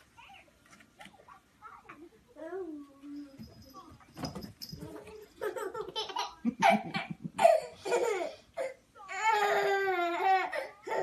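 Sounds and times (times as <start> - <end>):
baby laughing: 5.4 - 8.4.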